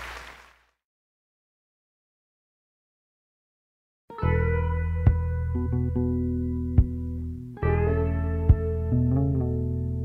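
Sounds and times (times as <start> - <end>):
instrumental music with held chords: 4.1 - 10.0.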